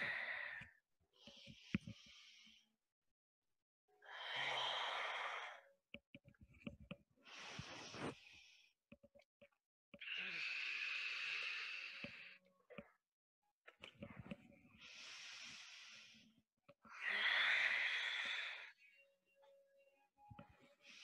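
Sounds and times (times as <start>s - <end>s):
woman breathing: 0.0s - 2.6s, 4.0s - 5.7s, 10.0s - 12.4s, 14.8s - 19.0s.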